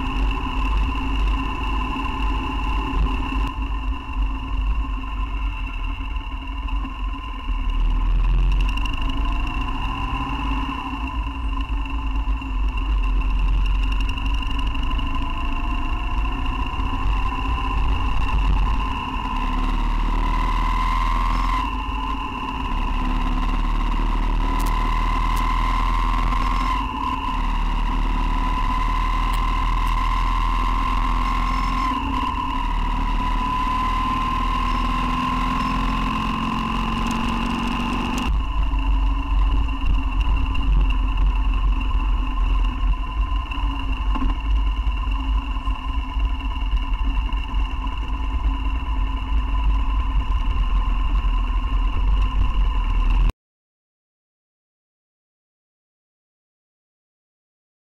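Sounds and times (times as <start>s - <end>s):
high whine: 0.0s - 53.3s
motorcycle engine and wind rumble: 0.0s - 53.3s.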